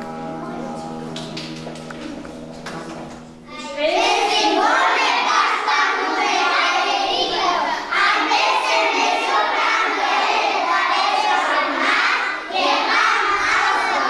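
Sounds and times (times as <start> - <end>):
young children singing: 3.5 - 14.0.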